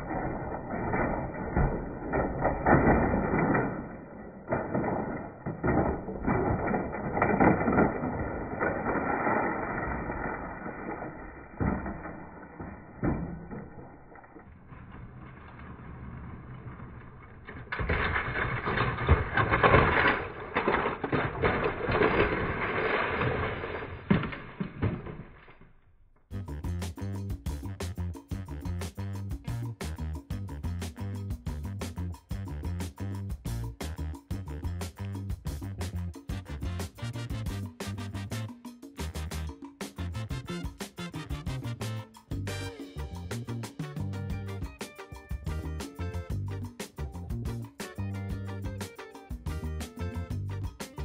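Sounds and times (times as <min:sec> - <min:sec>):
model train cars crashing: 0:00.0 - 0:51.0
music: 0:26.3 - 0:51.0.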